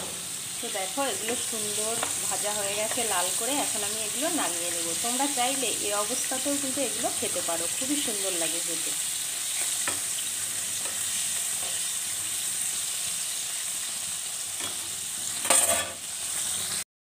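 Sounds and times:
chicken sizzling in hot oil: 0.0 - 16.9
spatula scraping pan: 14.6 - 16.5.

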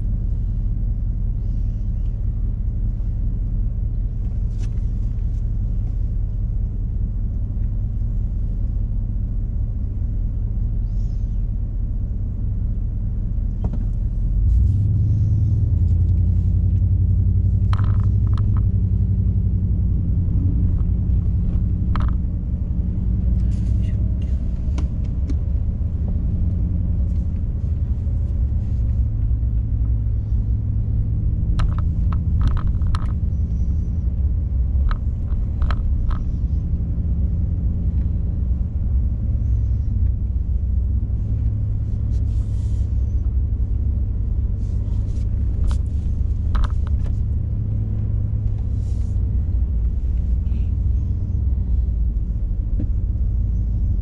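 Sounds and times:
car engine and tyres rumbling: 0.0 - 54.0.

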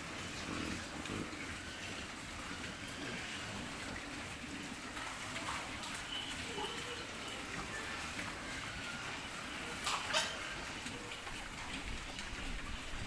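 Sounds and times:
pigs chomping and slurping: 0.0 - 13.0.

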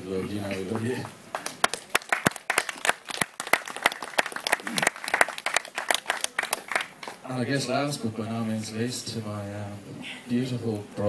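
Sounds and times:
people applauding: 0.4 - 7.2
close sharp hand claps: 0.5 - 7.2.

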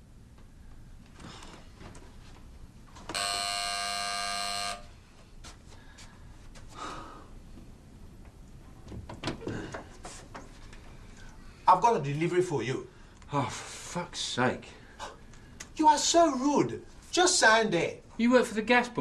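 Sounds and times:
electric door buzzer: 3.1 - 5.0
faint knocks and rustles: 7.5 - 11.3.

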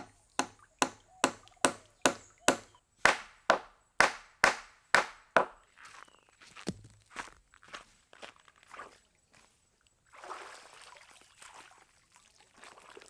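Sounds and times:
blade chopping wood: 0.0 - 5.6.

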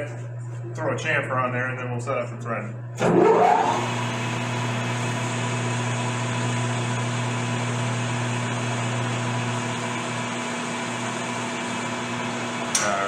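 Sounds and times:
lathe tool cutting metal: 3.0 - 5.8
metal lathe humming: 3.0 - 12.8.

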